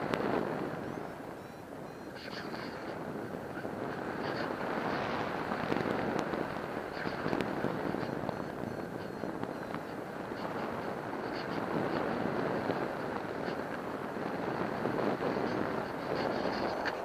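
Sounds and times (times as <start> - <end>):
wind rushing over microphone: 0.0 - 17.0
small crackles and pops: 5.6 - 8.4.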